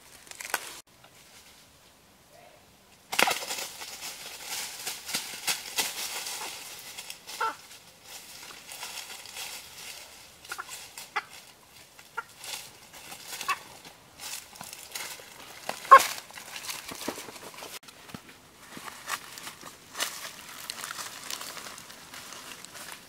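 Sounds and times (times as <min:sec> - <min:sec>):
footsteps rustling dry leaves: 0:00.0 - 0:01.8, 0:03.1 - 0:23.0
chicken squawking and clucking: 0:10.4 - 0:11.4, 0:12.0 - 0:12.4.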